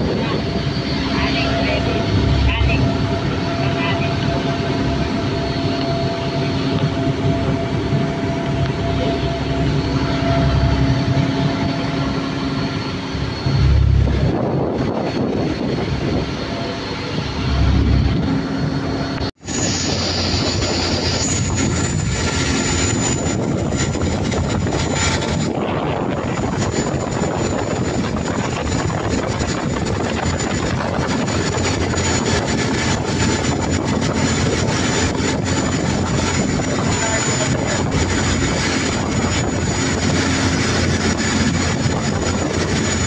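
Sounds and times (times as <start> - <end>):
boat engine drone: 0.0 - 43.0
water rushing against hull: 0.0 - 43.0
wind gusts on microphone: 0.0 - 43.0.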